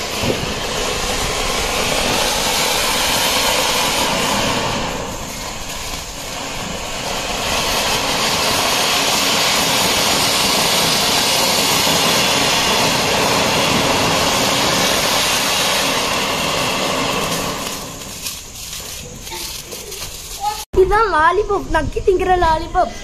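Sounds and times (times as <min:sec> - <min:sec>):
firework fountains hissing: 0:00.0 - 0:20.8.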